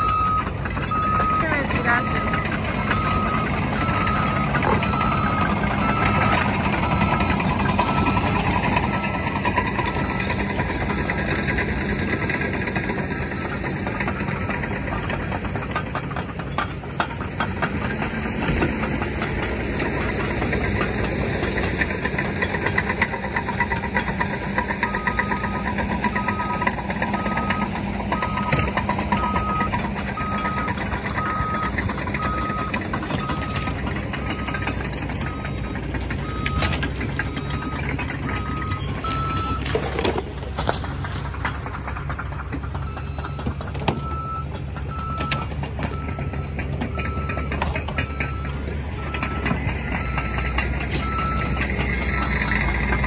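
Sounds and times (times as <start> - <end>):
reversing alarm beeping: 0.0 - 11.2, 22.9 - 39.8, 42.7 - 53.0
bulldozer diesel engine running: 0.0 - 53.0.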